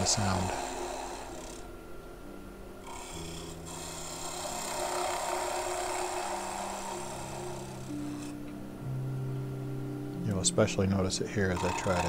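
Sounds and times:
lathe motor hum: 0:00.0 - 0:01.8, 0:02.8 - 0:08.7, 0:11.3 - 0:12.0
wood lathe tool cutting: 0:00.0 - 0:01.8, 0:02.8 - 0:08.6, 0:11.3 - 0:12.0.

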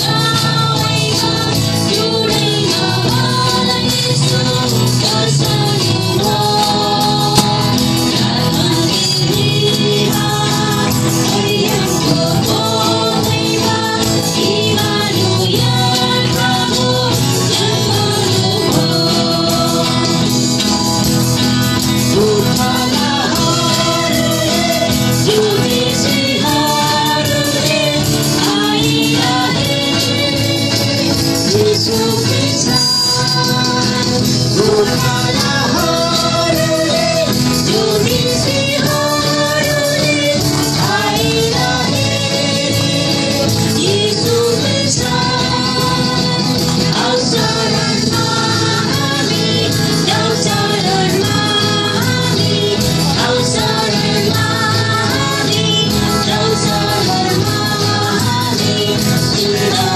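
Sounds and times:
group of voices singing: 0:00.0 - 0:59.9
tambourine shaking: 0:00.1 - 0:59.9.

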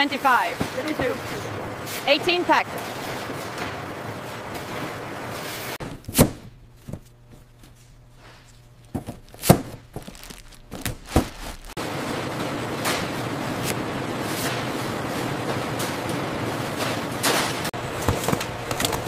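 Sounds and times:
dull thuds and knocks: 0:08.4 - 0:11.8.

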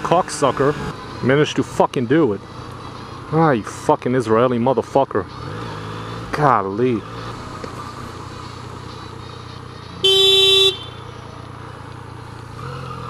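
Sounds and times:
motorcycle engine running: 0:00.0 - 0:13.0
traffic noise: 0:00.0 - 0:13.0
vehicle horn blast: 0:10.0 - 0:11.0.

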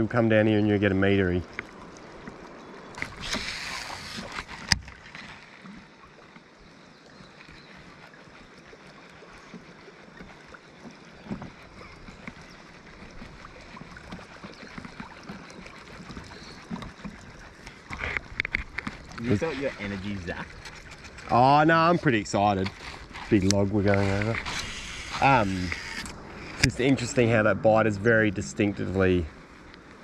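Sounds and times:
river water moving quietly: 0:00.0 - 0:30.0
small knocks and drips: 0:01.4 - 0:03.2, 0:04.1 - 0:21.4
brief hiss: 0:03.0 - 0:04.5.

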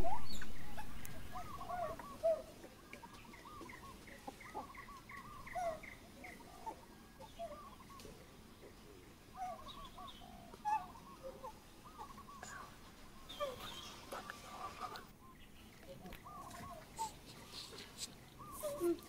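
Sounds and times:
loud single bird calls: 0:00.0 - 0:08.2
faint birdsong warbling: 0:00.0 - 0:19.0.

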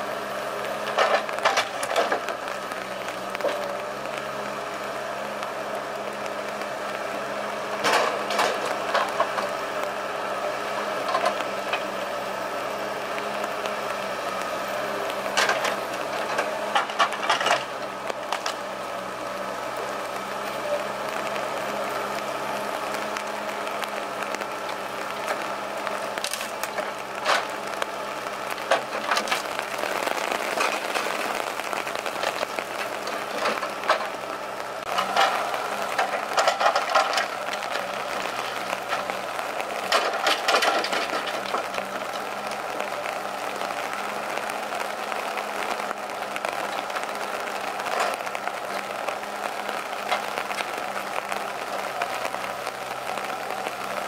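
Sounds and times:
diesel engine running: 0:00.0 - 0:54.0
knocks and wooden clatters: 0:00.8 - 0:04.3, 0:07.7 - 0:09.6, 0:13.2 - 0:18.7, 0:22.1 - 0:54.0.

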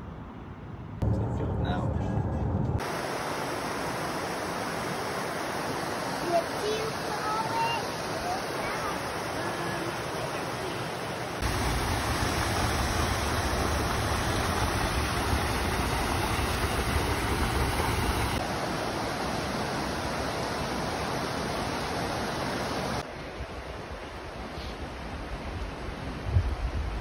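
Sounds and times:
creek water over rocks: 0:02.8 - 0:26.2
wind rumble on microphone: 0:25.1 - 0:27.0.

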